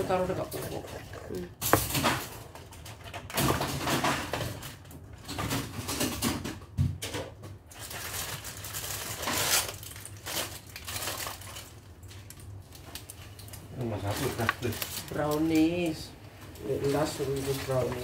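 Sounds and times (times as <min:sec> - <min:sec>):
plastic and foil crinkling: 0:07.7 - 0:18.0.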